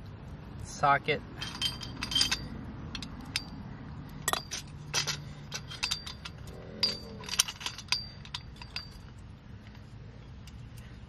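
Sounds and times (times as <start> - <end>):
metal clinks of socket and nuts: 1.4 - 3.6, 4.2 - 9.2.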